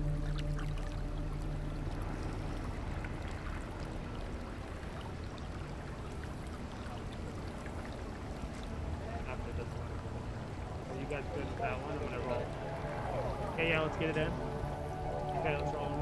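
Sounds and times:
water trickling and lapping: 0.0 - 16.0
held music chord: 7.9 - 16.0.

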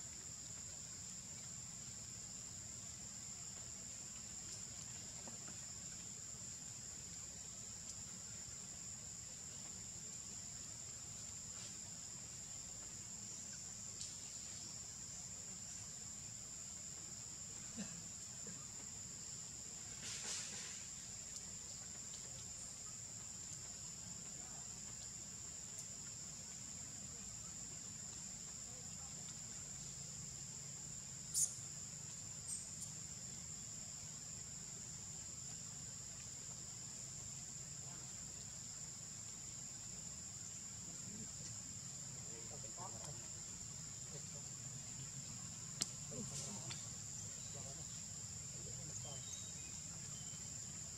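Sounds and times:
insects droning: 0.0 - 50.9
faint clicks: 45.8 - 46.9.

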